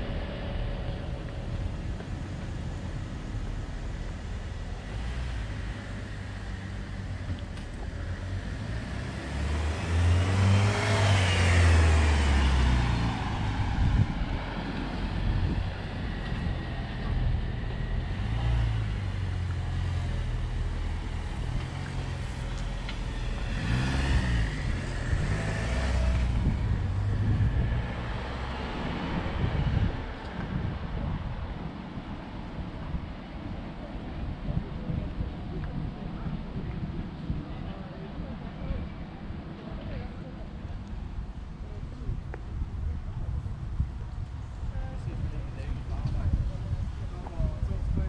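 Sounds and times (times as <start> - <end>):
car driving past: 0.0 - 30.8
background traffic noise: 0.0 - 48.0.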